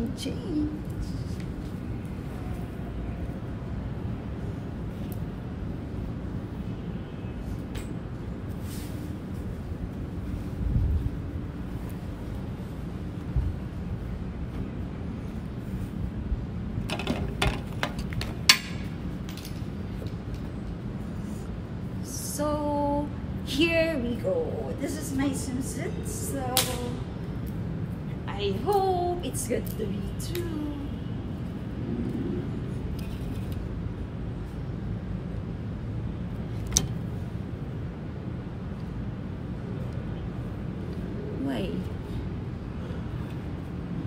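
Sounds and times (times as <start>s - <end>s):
low outdoor rumble: 0.0s - 44.0s.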